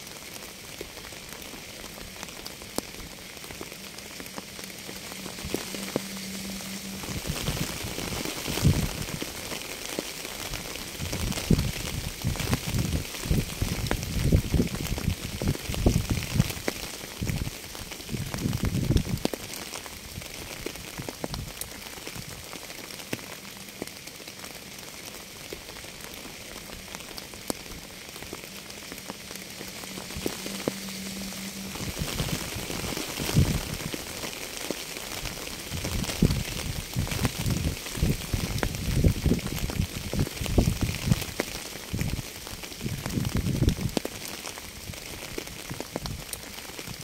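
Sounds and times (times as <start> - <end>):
raindrops ticking: 0.0 - 47.0
steady rain hiss: 0.0 - 47.0
low rumbles: 1.7 - 9.6, 25.7 - 34.2.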